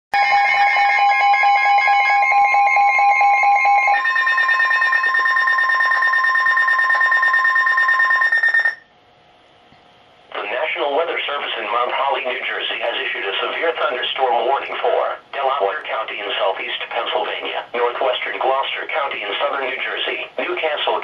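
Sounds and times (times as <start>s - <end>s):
steady warning tone: 0.2s - 8.9s
rapidly pulsing electronic beeps: 2.7s - 8.8s.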